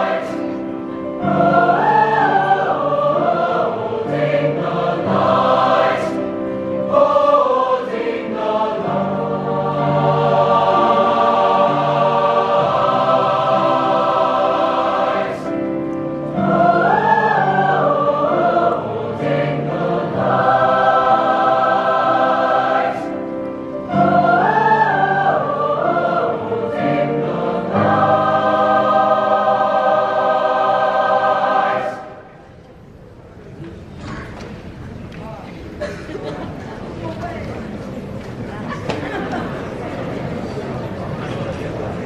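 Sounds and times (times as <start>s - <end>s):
choir singing sustained chords: 0.0s - 32.7s.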